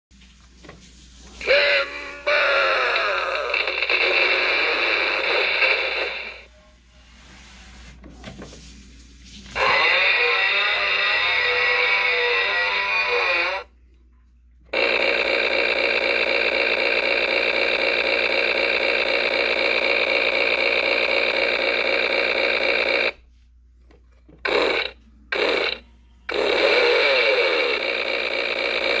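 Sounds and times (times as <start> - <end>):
toy chainsaw sound effect: 1.4 - 6.5, 9.6 - 13.7, 14.7 - 23.2, 24.4 - 29.0.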